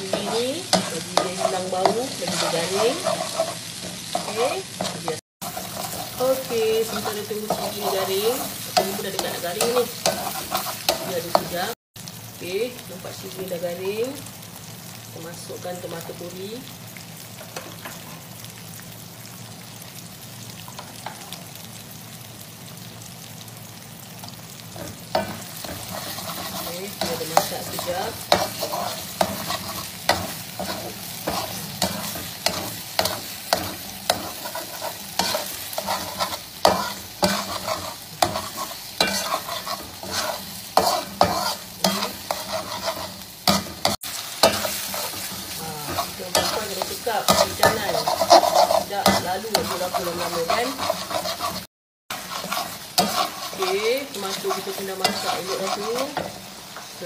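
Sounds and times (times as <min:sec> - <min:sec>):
metal spatula scraping pan: 0:00.0 - 0:11.7, 0:24.8 - 0:56.4
paste sizzling in oil: 0:00.0 - 0:57.0.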